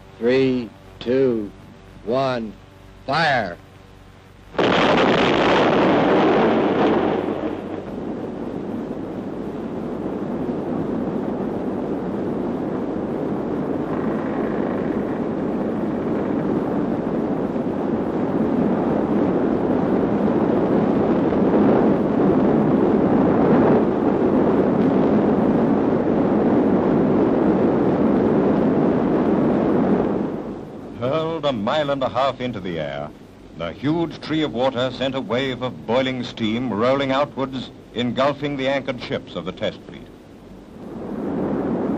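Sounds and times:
explosion rumbling roar: 4.6s - 9.1s, 12.2s - 30.6s.

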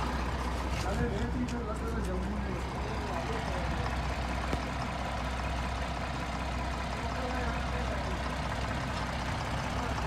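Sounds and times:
diesel engine droning: 0.0s - 10.0s.

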